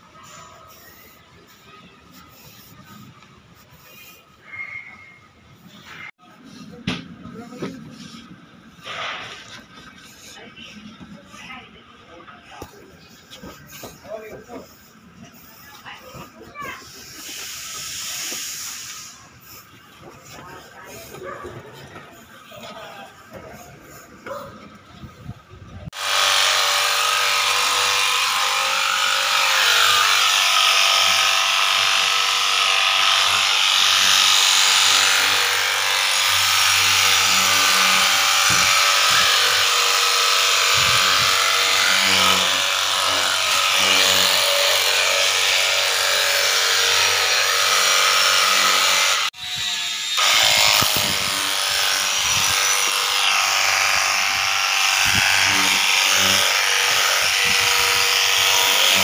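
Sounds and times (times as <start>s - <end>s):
water spray hiss: 17.0s - 19.2s.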